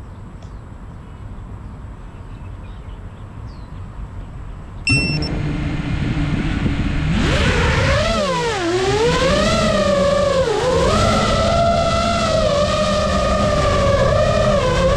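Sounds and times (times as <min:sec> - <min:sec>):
short high beep: 0:04.9 - 0:05.3
drone motors humming and whining: 0:04.9 - 0:14.9
low outdoor rumble: 0:04.9 - 0:14.9.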